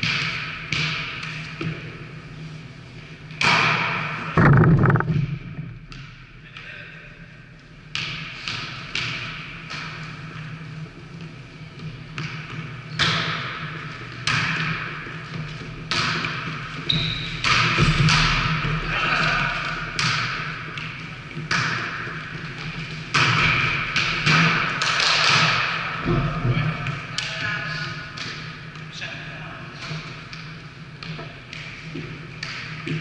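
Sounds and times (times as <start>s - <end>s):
volleyball slaps echoing: 3.4s - 6.2s.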